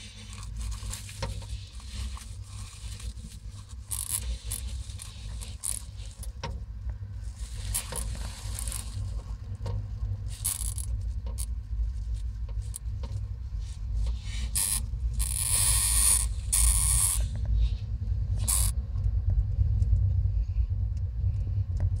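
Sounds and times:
dry hay rustling and crackling: 0.0 - 6.4, 7.2 - 17.0
microphone handling rumble: 0.0 - 22.0.

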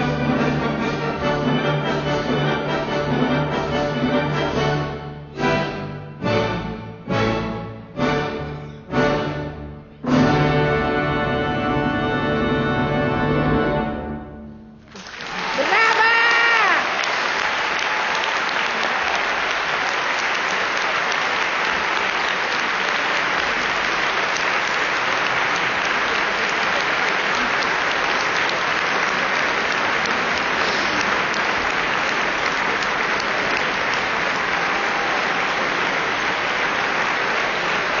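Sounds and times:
audience applause: 14.9 - 38.0.

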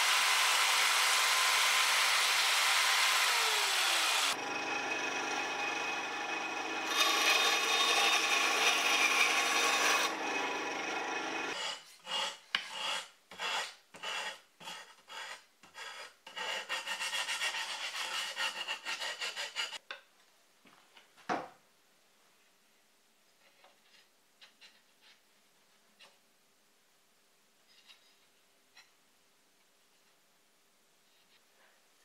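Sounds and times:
electric saw cutting wood: 0.0 - 11.6.

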